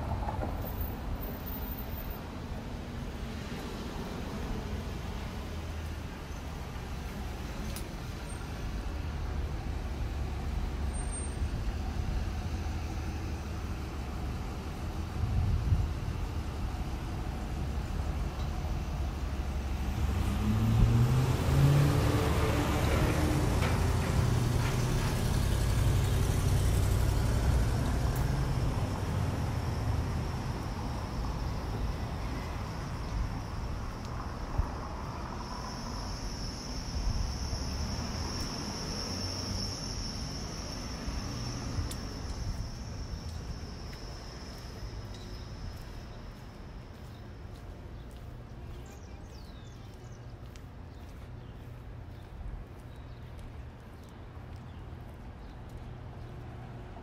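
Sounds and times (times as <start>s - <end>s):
low traffic rumble: 0.0s - 57.0s
vehicle engine accelerating: 18.8s - 47.2s.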